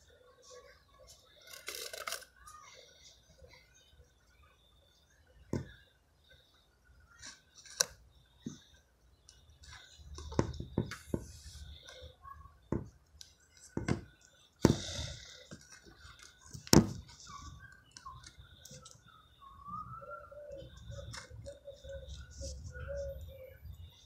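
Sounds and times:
faint wavering calls: 0:14.8 - 0:24.0.

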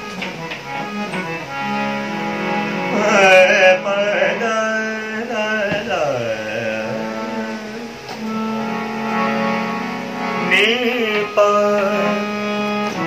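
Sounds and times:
harmonium drone: 0:00.0 - 0:13.0
man singing: 0:02.8 - 0:09.4, 0:10.3 - 0:13.0.

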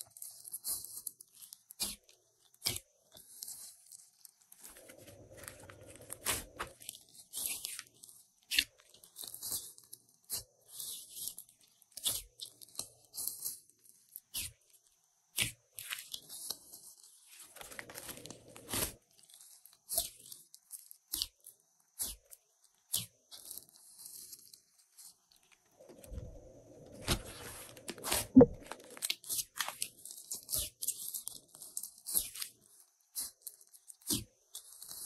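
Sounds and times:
slime squelching: 0:04.6 - 0:14.7, 0:15.3 - 0:21.3, 0:25.1 - 0:35.0
slime crackling and popping: 0:17.5 - 0:19.1.

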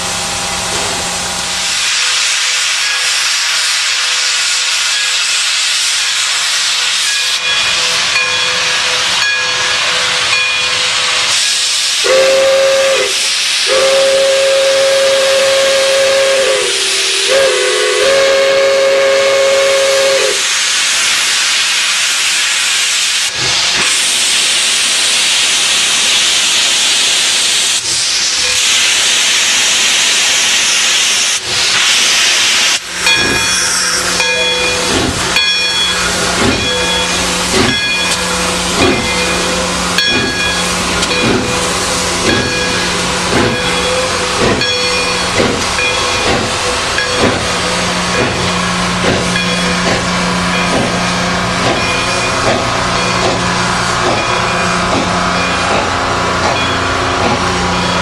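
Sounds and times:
steam hissing: 0:00.0 - 0:58.0
locomotive exhaust beats: 0:12.0 - 0:20.4, 0:32.8 - 0:58.0.

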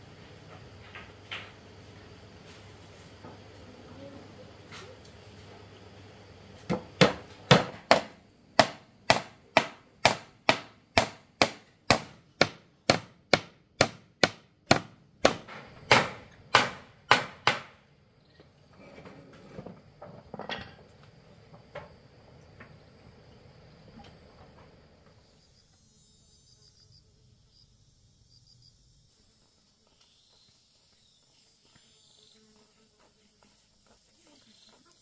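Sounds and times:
hand tool striking wood: 0:06.6 - 0:17.8.

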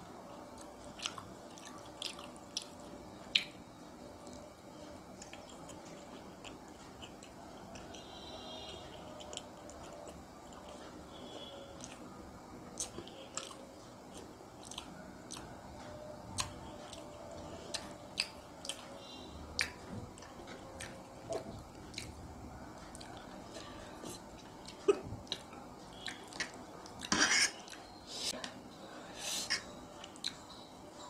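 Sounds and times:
person chewing noodles: 0:00.4 - 0:28.4.

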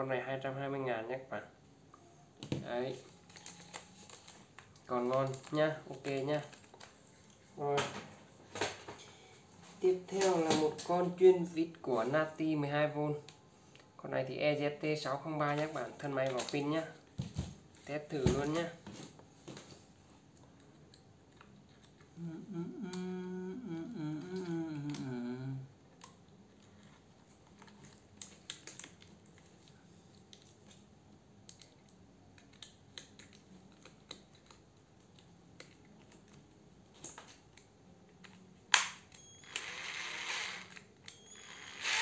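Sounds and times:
wavering hum: 0:22.2 - 0:25.6
screwdriver motor running: 0:39.4 - 0:42.0.

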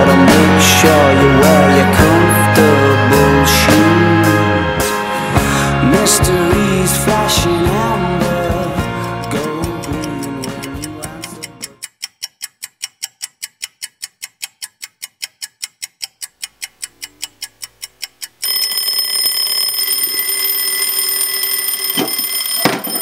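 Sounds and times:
clock ticking fast: 0:00.0 - 0:04.4, 0:05.3 - 0:19.4
alarm clock ringing: 0:18.4 - 0:23.0.

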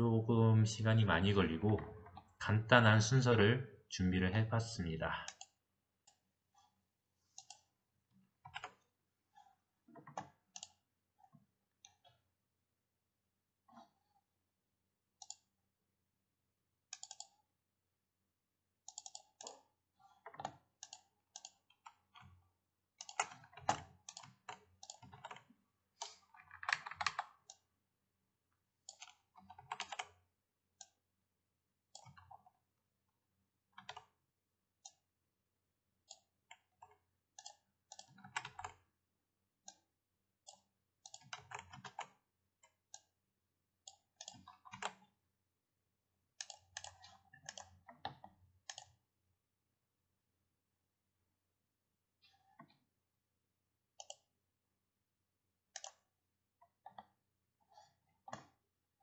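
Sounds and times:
computer mouse clicks: 0:05.3 - 0:06.2, 0:07.3 - 0:07.7, 0:08.4 - 0:10.8, 0:15.2 - 0:15.5, 0:16.9 - 0:17.5, 0:18.8 - 0:22.4, 0:23.0 - 0:27.7, 0:28.8 - 0:30.2, 0:31.9 - 0:32.5, 0:33.8 - 0:34.2, 0:34.8 - 0:35.0, 0:36.0 - 0:38.8, 0:39.6 - 0:43.1, 0:43.8 - 0:45.1, 0:46.4 - 0:49.0, 0:54.0 - 0:54.3, 0:55.7 - 0:58.6
keyboard clicks: 0:16.9 - 0:17.4, 0:23.0 - 0:25.4, 0:26.0 - 0:27.6, 0:28.8 - 0:30.2, 0:55.7 - 0:56.0.

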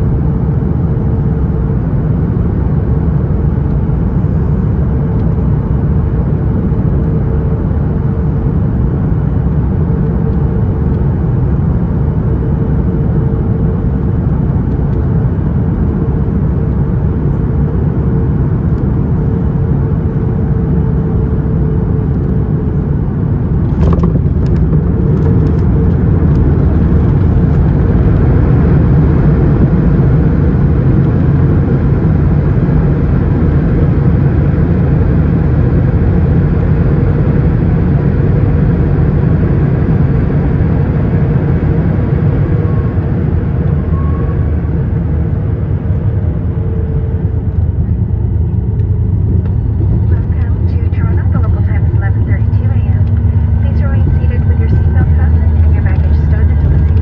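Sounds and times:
jet engines and airflow rumble: 0:00.0 - 0:57.0
steady hum: 0:00.0 - 0:57.0.

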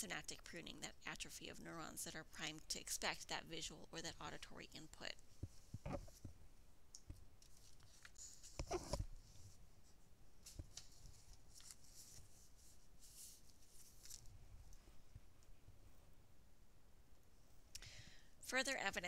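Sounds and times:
soft rustles: 0:05.2 - 0:16.2.

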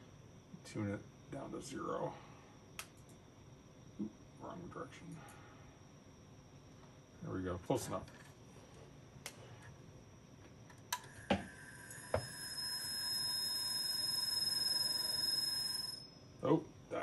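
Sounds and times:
hard drive motor whine: 0:10.9 - 0:16.2.

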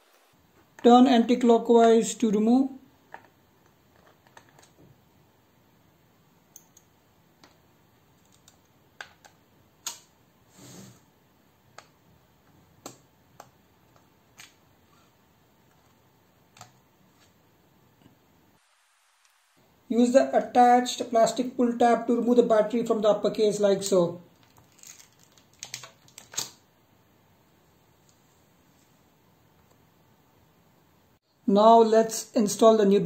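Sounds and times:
short scrape: 0:10.5 - 0:11.0.

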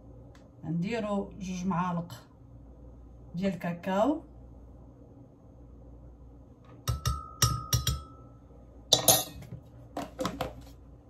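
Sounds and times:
metal spoon tapping glass jar: 0:06.8 - 0:08.2
glass jar ringing: 0:08.9 - 0:09.4
utensils clattering: 0:08.9 - 0:09.5
utensils clinking on dish: 0:08.9 - 0:09.5.

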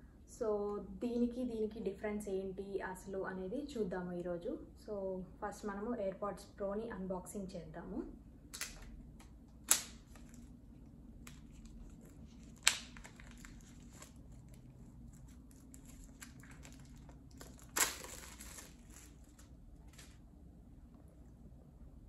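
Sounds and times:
wrapping snapping: 0:08.5 - 0:20.2
wrapping tearing: 0:09.6 - 0:10.6, 0:11.2 - 0:20.2
wrapping crinkling: 0:09.6 - 0:20.2.

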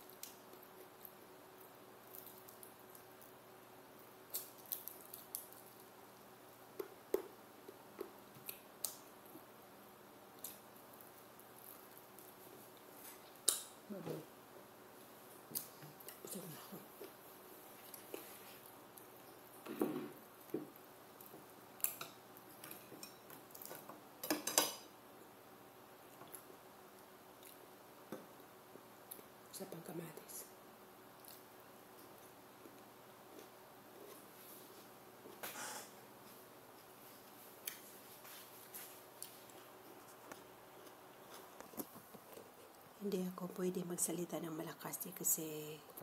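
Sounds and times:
mouth smacks and chewing: 0:31.2 - 0:34.2.

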